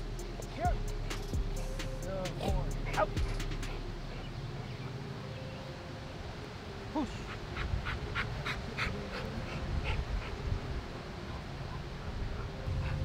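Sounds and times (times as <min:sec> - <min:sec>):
dog panting: 0:02.6 - 0:05.0, 0:07.0 - 0:10.6, 0:11.3 - 0:13.0.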